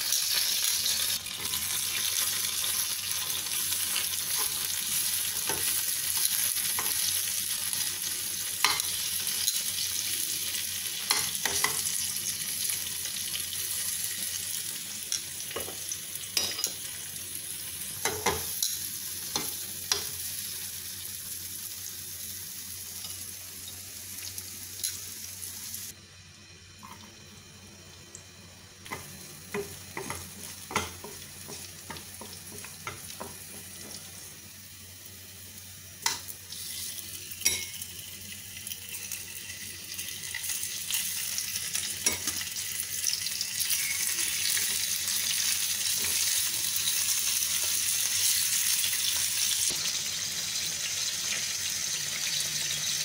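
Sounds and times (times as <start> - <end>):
onions sizzling in a frying pan: 0.0 - 26.0, 27.2 - 53.0
metal tongs tapping a pan: 11.1 - 11.9, 16.4 - 16.8, 18.0 - 20.2, 28.9 - 34.0, 37.4 - 37.8, 42.0 - 42.4.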